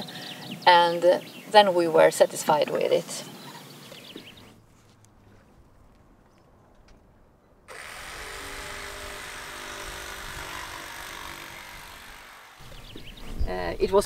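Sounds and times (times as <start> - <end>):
power tool working plywood: 7.7 - 13.2.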